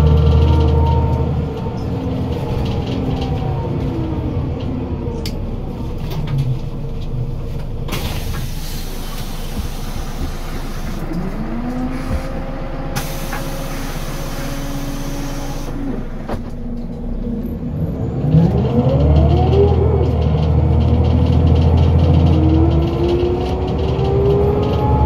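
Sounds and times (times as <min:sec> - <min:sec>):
bus engine and gearbox whine: 0:00.0 - 0:25.0
hiss of air: 0:08.0 - 0:11.0, 0:13.0 - 0:15.8.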